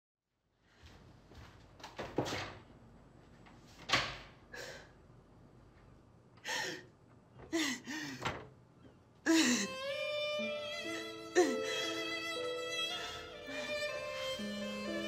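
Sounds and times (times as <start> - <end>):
woman sobbing: 9.3 - 9.8, 11.3 - 12.4.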